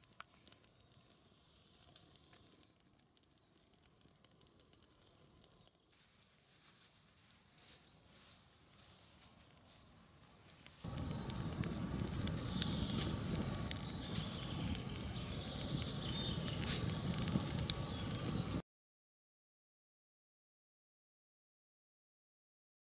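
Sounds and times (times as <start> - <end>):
birds chirping: 7.4 - 18.6.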